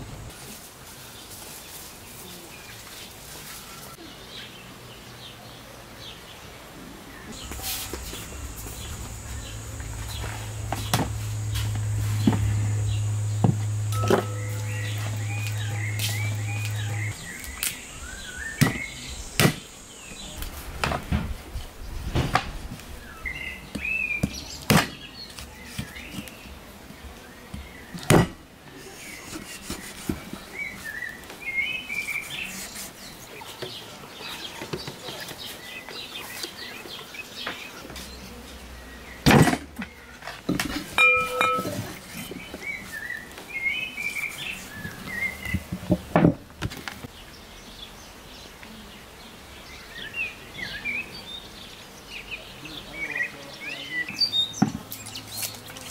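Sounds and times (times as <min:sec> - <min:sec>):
small birds chirping: 0:01.1 - 0:20.7, 0:28.9 - 0:39.2, 0:41.1 - 0:45.9, 0:47.0 - 0:55.9
cleaver chopping meat on wood: 0:18.6 - 0:19.6, 0:23.8 - 0:25.0.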